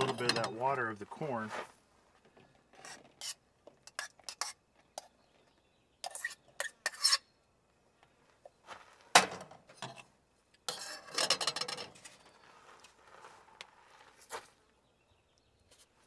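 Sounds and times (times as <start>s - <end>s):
spoon scraping cook pot: 2.8s - 5.1s, 6.0s - 7.3s, 10.6s - 12.4s.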